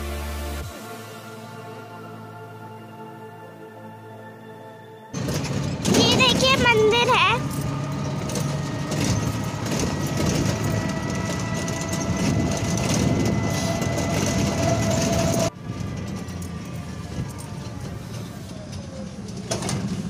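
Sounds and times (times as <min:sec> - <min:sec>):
rumbling road and wind noise: 0:05.2 - 0:20.0.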